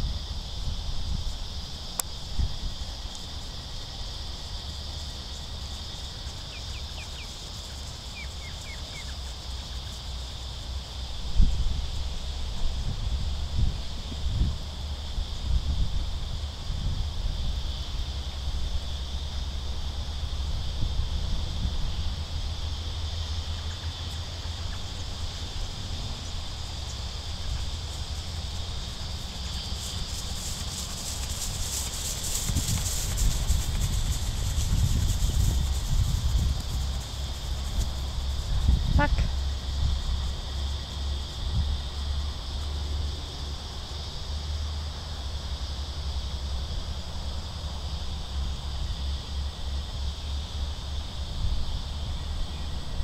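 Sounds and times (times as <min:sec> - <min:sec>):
high insect drone: 0:00.0 - 0:53.0
steady high hiss: 0:00.0 - 0:53.0
wind rumbling on microphone: 0:00.0 - 0:53.0
bird chirping: 0:08.1 - 0:09.7.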